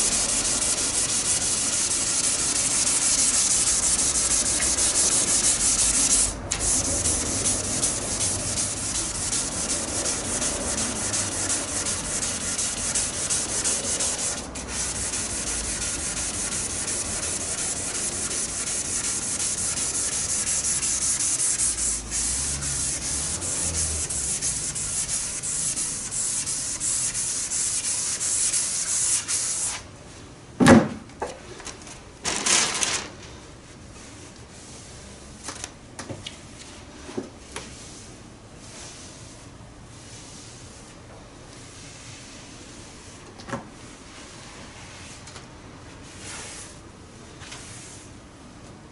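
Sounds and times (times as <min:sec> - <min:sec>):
sandpaper scratching by hand: 0:00.0 - 0:29.8.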